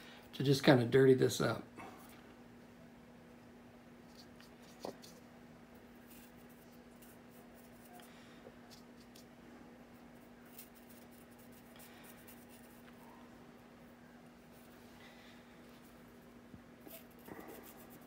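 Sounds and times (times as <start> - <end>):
steady low hum: 0.0 - 18.0
paintbrush scratching on plastic: 5.9 - 8.0, 10.0 - 13.0, 16.8 - 18.0.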